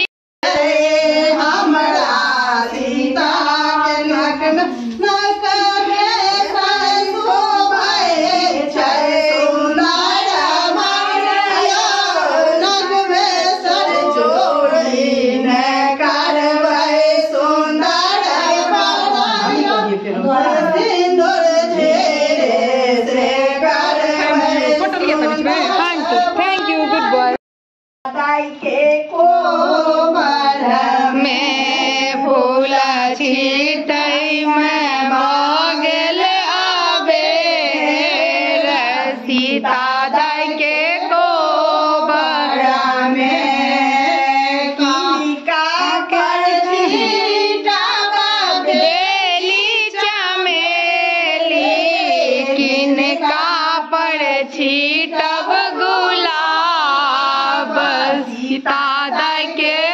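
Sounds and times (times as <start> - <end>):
women singing unaccompanied: 0.0 - 27.4, 28.1 - 59.9.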